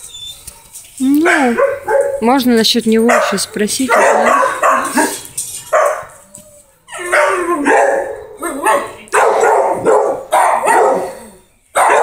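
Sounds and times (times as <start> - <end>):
dog barking: 1.5 - 2.2, 3.1 - 6.2, 7.1 - 11.2, 11.8 - 12.0.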